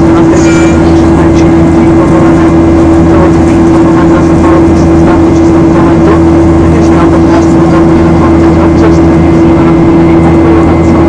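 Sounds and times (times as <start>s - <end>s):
jet engine drone in cabin: 0.0s - 11.0s.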